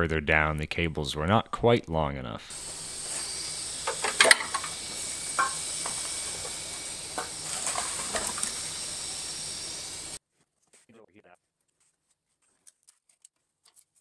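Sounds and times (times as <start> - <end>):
steady hiss: 2.5 - 10.2.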